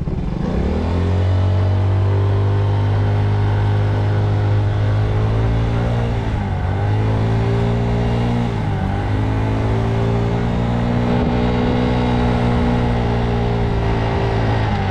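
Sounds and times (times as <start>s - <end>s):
scooter engine running: 0.0s - 14.9s.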